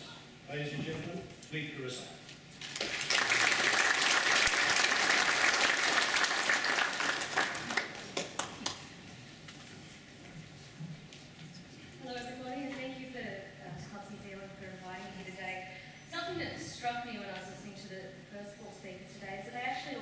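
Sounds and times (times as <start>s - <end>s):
audience applauding: 2.6s - 8.9s.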